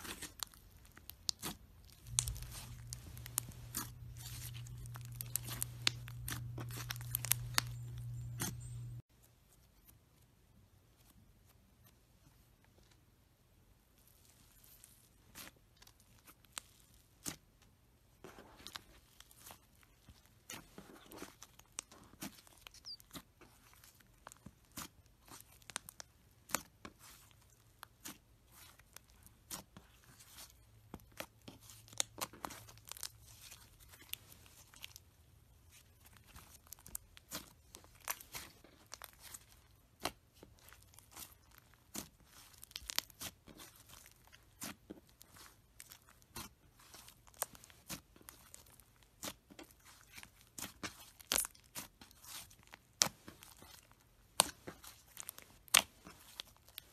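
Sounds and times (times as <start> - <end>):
sticky slime pops and crackles: 0.0 - 8.5, 54.3 - 56.8.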